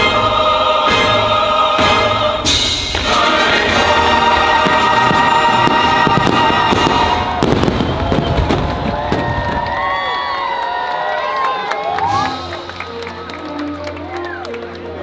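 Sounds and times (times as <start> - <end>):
choral music: 0.0 - 9.2, 12.1 - 15.0
fireworks bursting: 2.4 - 10.0.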